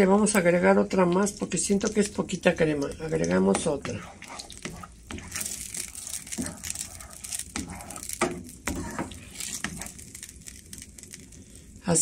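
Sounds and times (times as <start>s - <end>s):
spatula scraping frying pan: 1.8s - 11.3s.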